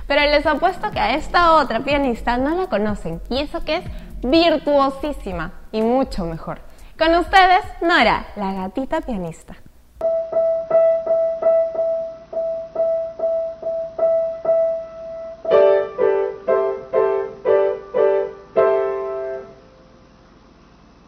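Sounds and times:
grand piano notes repeated: 10.0 - 19.9.

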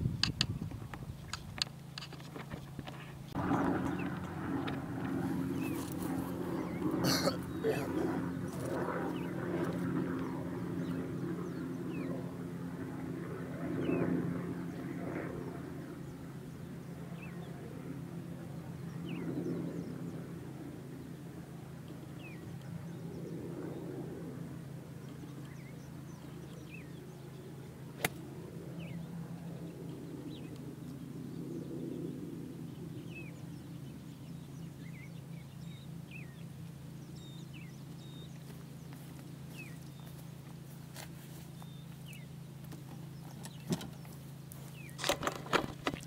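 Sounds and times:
birds chirping: 0.0 - 12.6, 13.3 - 46.0
low hum: 0.0 - 46.0
golf club striking ball: 28.0 - 28.2.

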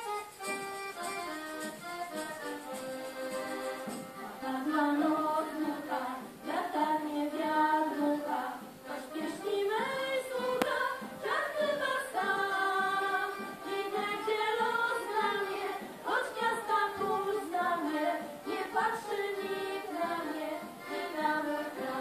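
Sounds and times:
accordions playing: 0.0 - 22.0
mixed choir singing: 4.2 - 22.0
woman singing lead: 4.2 - 22.0.

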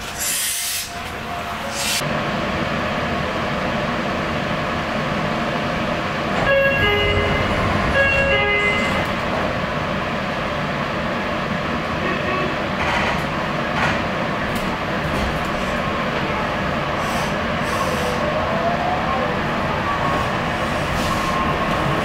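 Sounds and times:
electric train rumbling: 0.0 - 22.0
train horn: 6.4 - 9.1, 12.0 - 12.6.

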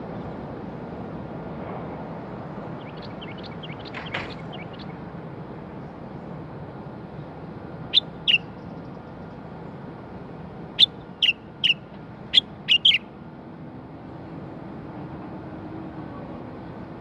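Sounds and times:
bird giving sharp calls: 7.9 - 8.5, 10.8 - 13.0.

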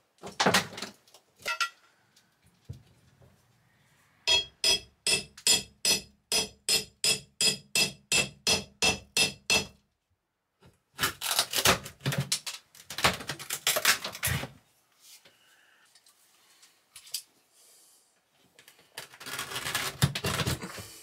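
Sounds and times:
hammer striking steel bar: 4.3 - 9.8.

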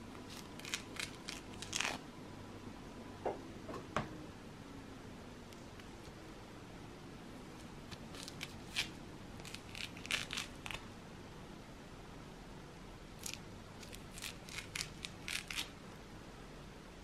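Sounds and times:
orange peel tearing: 0.2 - 2.0, 7.9 - 10.9, 13.2 - 15.8.

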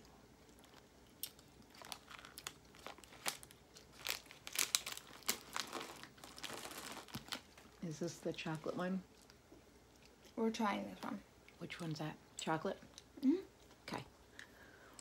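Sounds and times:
plastic packaging crinkling: 0.7 - 7.8.

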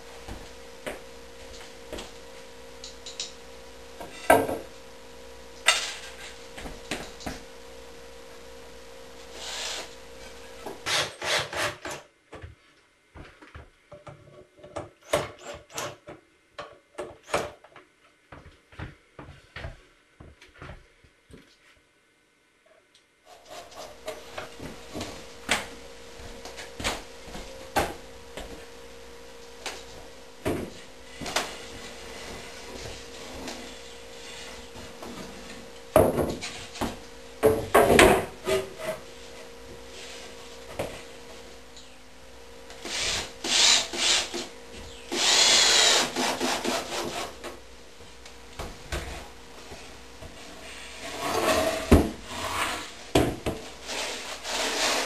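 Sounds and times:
cordless drill driving screws: 42.8 - 44.4, 45.1 - 47.0.

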